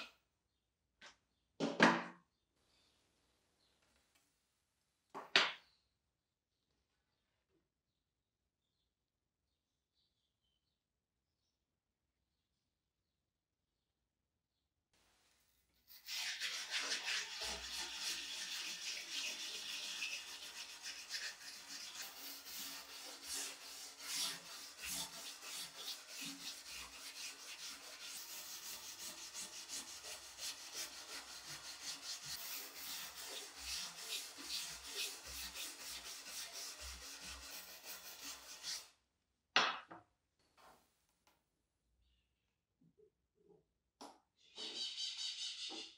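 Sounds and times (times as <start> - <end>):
brush scrubbing saw blade: 15.9 - 38.9.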